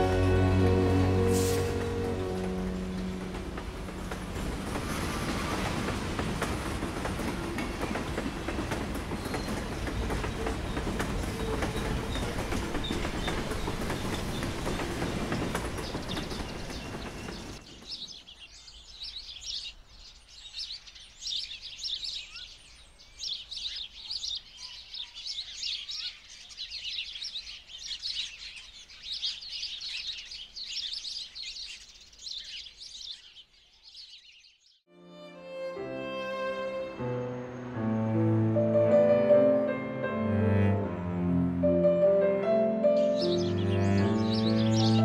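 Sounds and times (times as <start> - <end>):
train running on rails: 0.0 - 18.3, 43.0 - 45.0
sparrows chirping: 6.8 - 34.9, 42.9 - 45.0.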